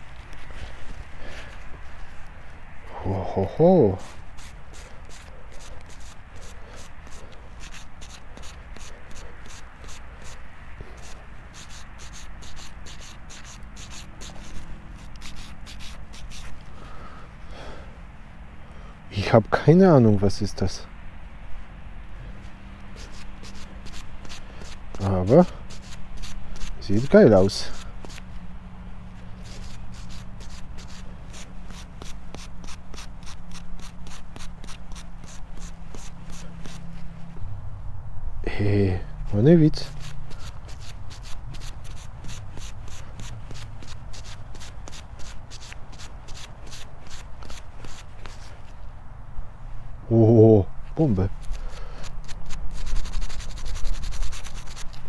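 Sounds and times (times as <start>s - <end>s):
steady low hum: 0.0s - 55.0s
small brush scrubbing metal object: 4.0s - 16.6s, 22.9s - 28.2s, 29.4s - 37.0s, 39.8s - 48.7s, 51.4s - 55.0s.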